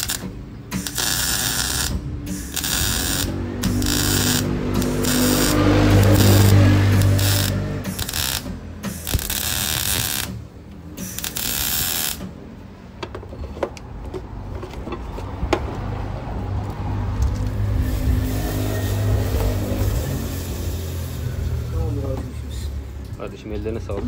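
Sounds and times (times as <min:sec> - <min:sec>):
welding hiss: 0:00.8 - 0:10.4, 0:11.0 - 0:12.2, 0:17.6 - 0:22.0.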